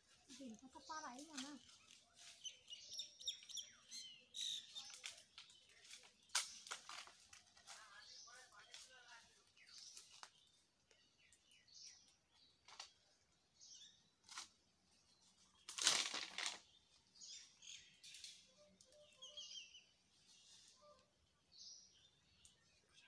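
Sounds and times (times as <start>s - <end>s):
rustle of leaves: 0.0s - 3.5s, 4.6s - 10.7s, 15.1s - 21.2s
small birds chirping: 0.0s - 23.0s.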